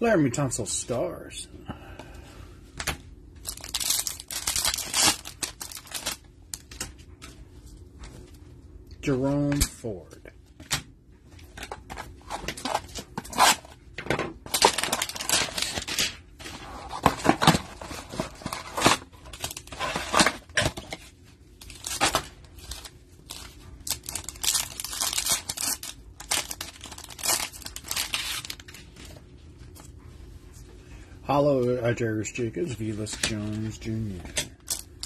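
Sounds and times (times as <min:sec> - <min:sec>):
card packs tearing and crinkling: 0:03.4 - 0:06.9, 0:11.6 - 0:13.8, 0:14.5 - 0:21.0, 0:21.6 - 0:28.9, 0:32.8 - 0:35.0.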